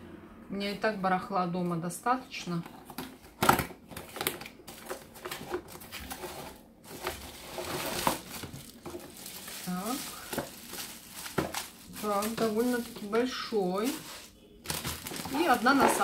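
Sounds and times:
packaging rustling and crinkling: 2.6s - 16.0s
cardboard clicks and knocks: 2.8s - 6.2s.

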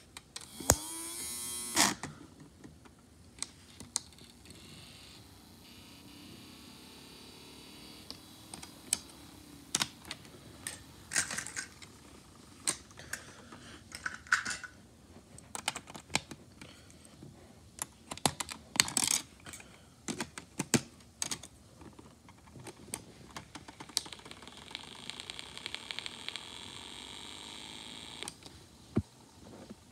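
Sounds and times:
plastic parts clicking and snapping: 8.0s - 11.9s, 12.6s - 14.8s, 15.4s - 16.8s, 17.8s - 24.5s.

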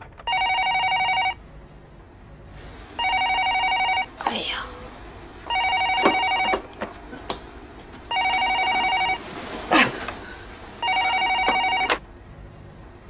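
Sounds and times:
telephone ringing: 0.2s - 1.4s, 3.0s - 4.1s, 5.4s - 6.7s, 8.1s - 9.4s, 10.8s - 12.0s.

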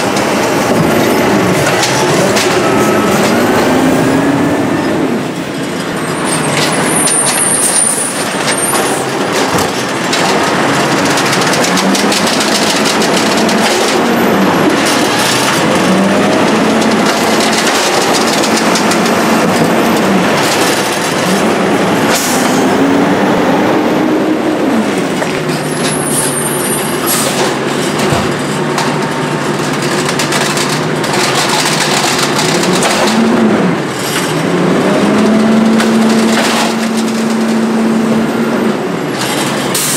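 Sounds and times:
garbage truck diesel engine revving: 0.0s - 39.9s
mechanical clatter: 5.6s - 22.6s, 25.0s - 38.0s.

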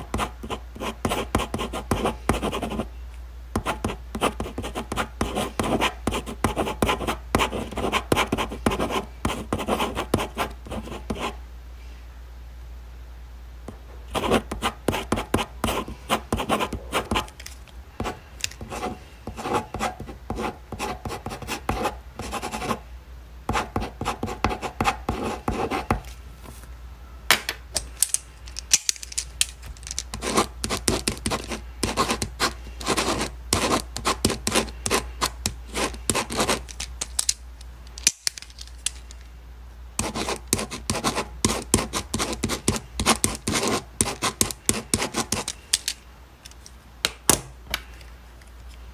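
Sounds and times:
ballpoint pen scratching on paper: 0.0s - 2.9s, 3.6s - 11.4s, 14.1s - 17.3s, 18.0s - 22.8s, 23.5s - 26.0s, 30.1s - 36.8s, 40.0s - 45.6s.

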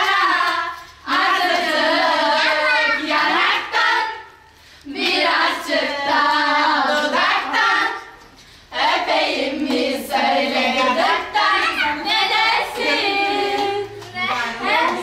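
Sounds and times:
person singing unaccompanied: 0.0s - 4.3s, 8.7s - 15.0s.

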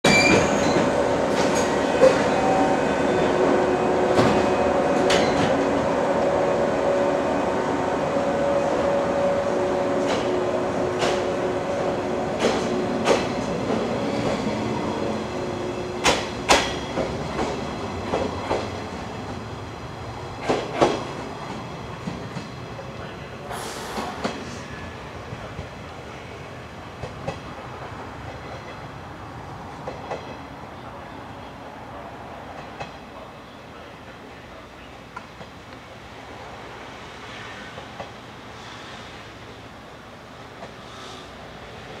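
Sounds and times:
electric train hum: 0.1s - 42.0s
train wheels clicking over rail joints: 10.0s - 11.4s, 12.3s - 14.6s, 16.0s - 18.9s, 20.4s - 22.6s.

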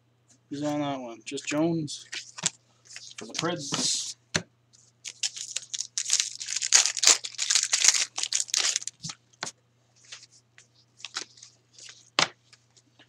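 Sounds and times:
wrapper tearing and crinkling: 5.0s - 9.2s.

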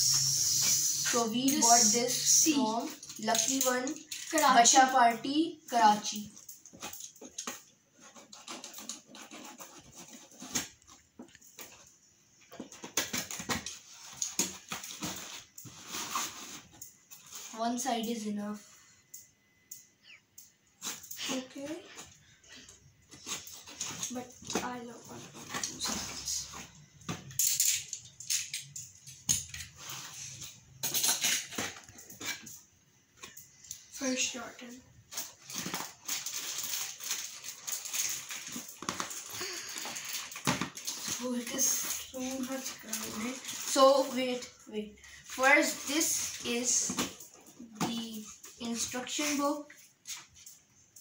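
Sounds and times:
cardboard rustling and scraping: 7.9s - 11.8s, 12.6s - 17.6s
knife scraping cardboard: 8.1s - 10.6s.

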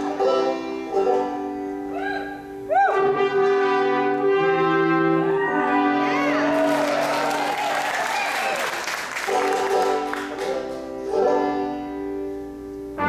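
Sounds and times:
banjo call: 0.0s - 6.3s, 9.3s - 12.5s
brass quintet playing: 0.0s - 6.7s, 9.2s - 12.2s.

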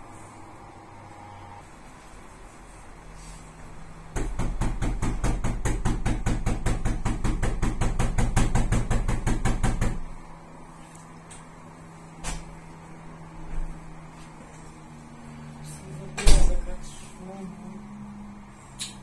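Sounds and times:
rapid banging on wooden door: 4.1s - 10.1s.

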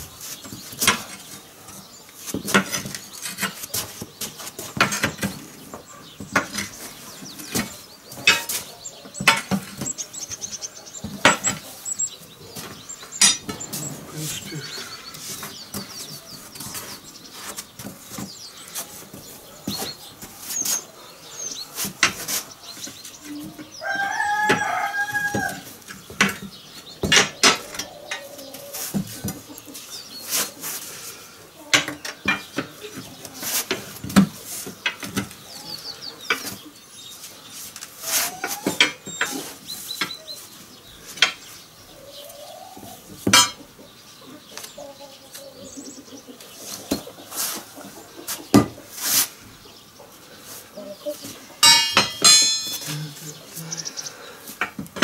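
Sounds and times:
clucking calls: 0.0s - 37.2s, 37.8s - 55.0s
tyre irons clanking on steel rim: 6.2s - 10.0s, 12.6s - 14.8s, 43.3s - 43.6s, 51.6s - 53.2s
rooster crowing: 23.7s - 25.7s.

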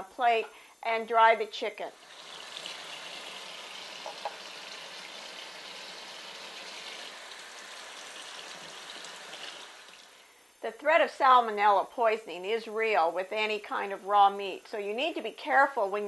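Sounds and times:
tap water splashing into sink: 2.2s - 10.0s.

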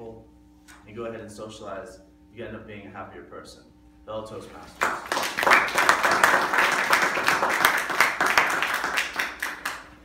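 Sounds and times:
audience clapping: 4.7s - 10.0s.

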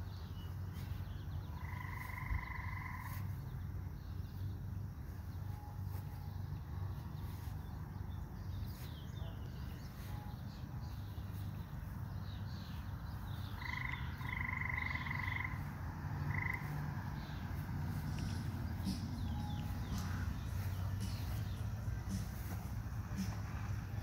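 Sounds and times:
small bird chirps: 0.0s - 6.6s, 7.2s - 22.7s
steady low rumble: 0.0s - 24.0s
frog trilling: 1.5s - 3.2s, 13.5s - 17.0s.

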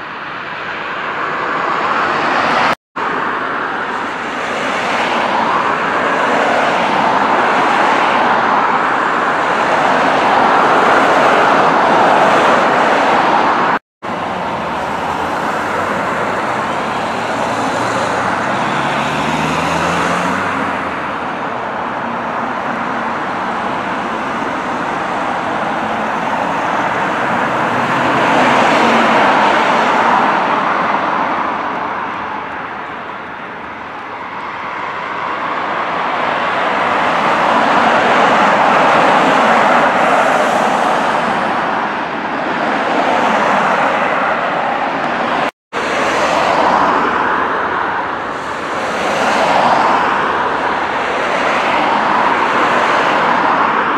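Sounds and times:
jet engines roaring: 0.0s - 53.9s.

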